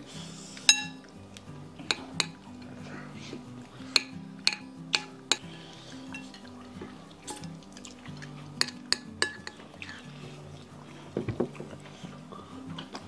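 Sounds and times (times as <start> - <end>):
background music: 0.0 - 13.0
spoons clinking on ceramic bowls: 0.7 - 1.0, 1.8 - 2.7, 3.9 - 5.5, 6.1 - 6.5, 7.2 - 10.2.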